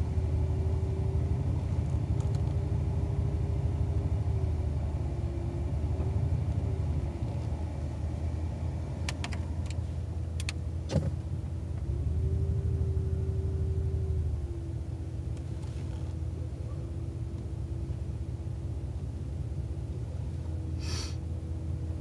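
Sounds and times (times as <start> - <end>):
truck engine running: 0.0 - 22.0.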